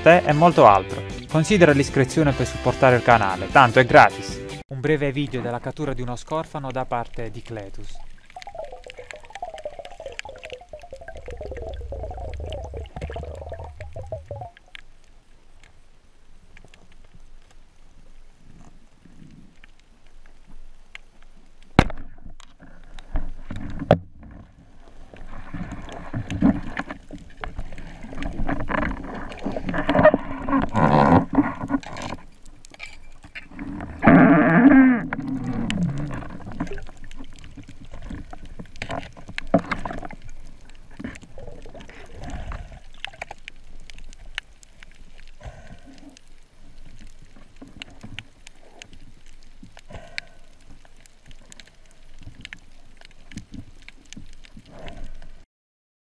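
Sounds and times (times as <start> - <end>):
underwater clicks and knocks: 7.0 - 14.9, 21.8 - 55.0.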